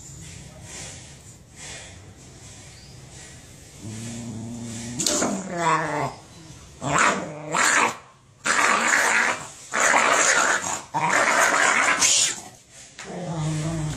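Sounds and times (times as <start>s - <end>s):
dog snarling and growling: 3.8s - 6.2s, 6.8s - 13.9s.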